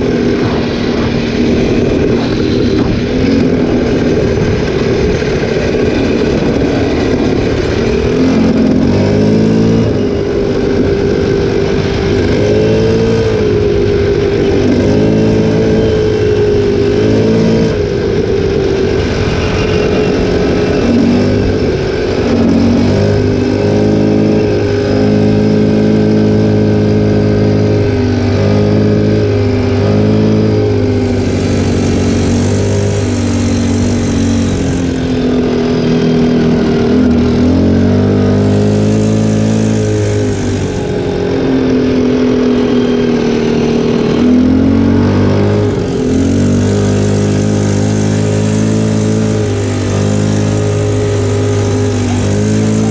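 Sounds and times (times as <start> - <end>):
atv engine revving: 0.0 - 52.9.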